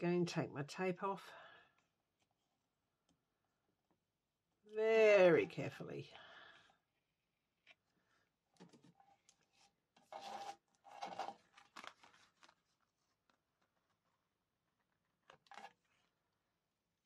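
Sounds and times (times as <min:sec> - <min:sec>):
paper rustling and crinkling: 0:08.6 - 0:14.2.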